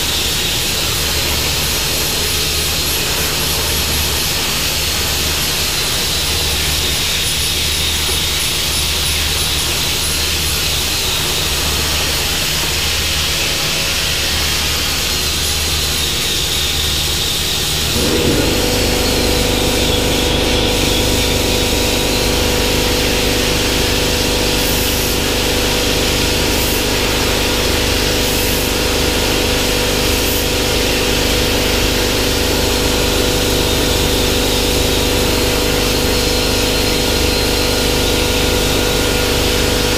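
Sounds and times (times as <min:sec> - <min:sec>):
low mechanical hum: 0:00.0 - 0:39.9
plasma torch hissing: 0:17.4 - 0:27.3.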